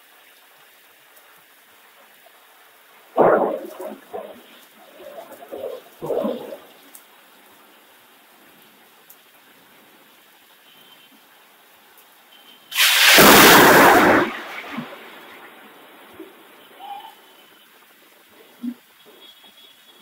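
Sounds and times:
heavy rain hiss: 0:00.0 - 0:20.0
thunder clap: 0:03.2 - 0:06.7, 0:12.8 - 0:16.5.

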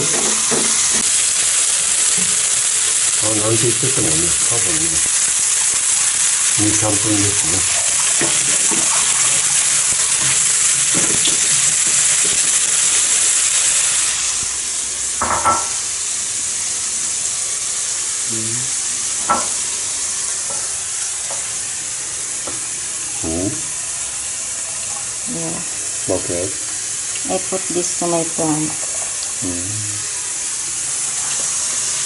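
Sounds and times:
pot and utensils clinking: 0:00.0 - 0:01.1, 0:07.7 - 0:12.4
meat sizzling in a wok: 0:00.0 - 0:32.0.

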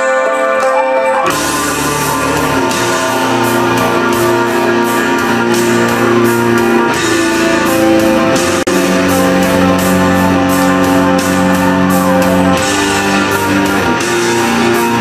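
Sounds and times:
live metal music: 0:00.0 - 0:15.0.

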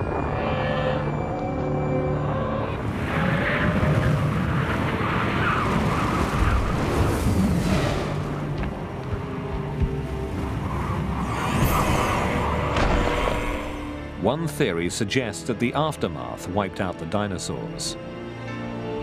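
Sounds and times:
continuous rushing rumble: 0:02.0 - 0:14.2.

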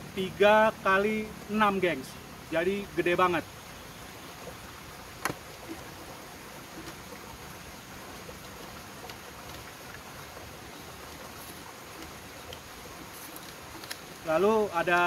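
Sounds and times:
steady outdoor hiss: 0:00.0 - 0:15.0
faint ticks and rustles: 0:04.2 - 0:15.0.

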